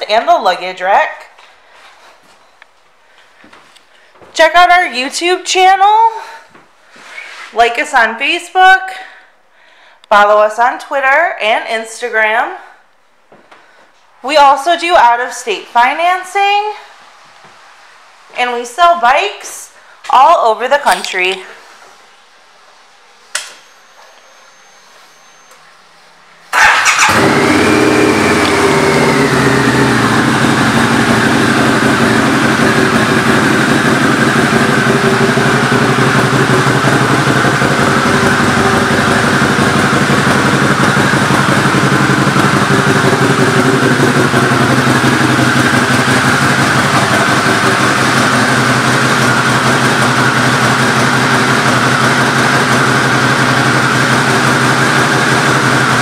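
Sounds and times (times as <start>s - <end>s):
motorcycle engine starting and idling: 20.9s - 56.0s.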